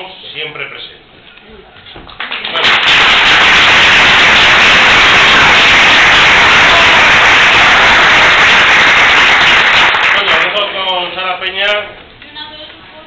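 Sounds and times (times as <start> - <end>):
audience applauding: 2.2 - 10.8.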